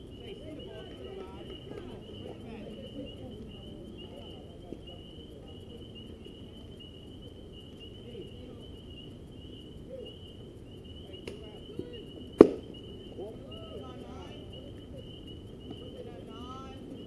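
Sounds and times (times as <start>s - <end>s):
faint distant voices: 0.0s - 17.0s
insects chirring: 0.0s - 17.0s
baseball hitting catcher's mitt crack: 12.4s - 12.7s.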